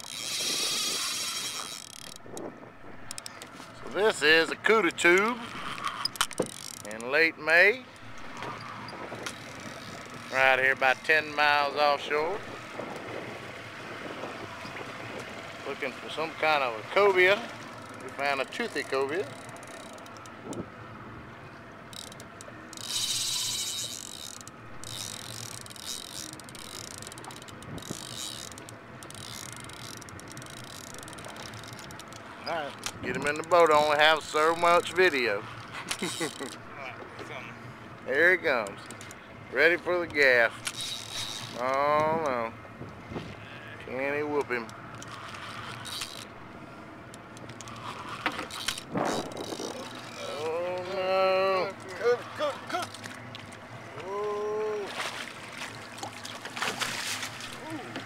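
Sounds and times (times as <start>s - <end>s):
fishing reel drag clicking: 0.0s - 3.6s, 5.1s - 7.1s, 7.9s - 10.4s, 17.7s - 20.6s, 21.9s - 36.6s, 40.4s - 41.8s, 44.7s - 46.3s, 47.1s - 50.5s.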